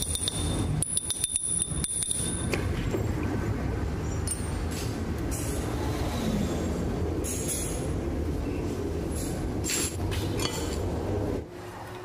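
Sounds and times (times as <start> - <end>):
steel rod clinking on metal: 0.0 - 2.6.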